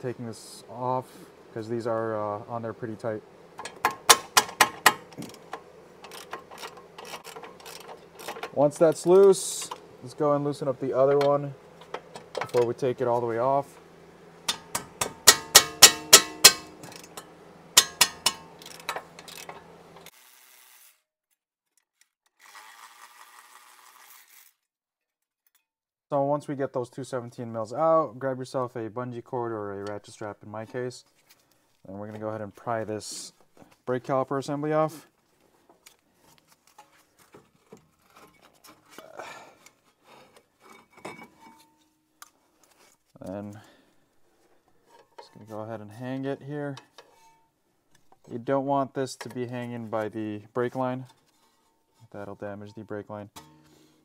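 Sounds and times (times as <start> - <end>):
hand ratchet clicking: 3.6 - 8.8, 14.5 - 17.2, 17.8 - 21.0
electric ratchet whirring: 6.0 - 8.4, 18.6 - 21.1, 22.4 - 24.6
metal scraping and rubbing: 39.9 - 42.0, 46.8 - 47.5, 51.0 - 52.4.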